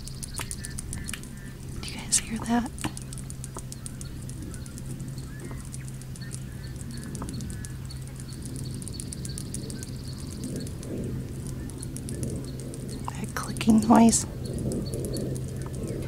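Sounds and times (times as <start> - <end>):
insects clicking rapidly: 0.0 - 16.0
low steady hum: 0.0 - 16.0
thin steady whine: 0.0 - 16.0.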